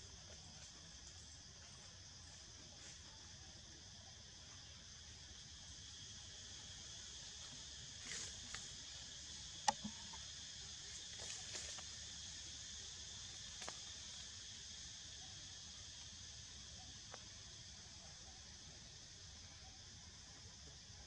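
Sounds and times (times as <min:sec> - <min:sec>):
insects chorus: 0:00.0 - 0:21.0
sharp click: 0:09.7 - 0:10.2.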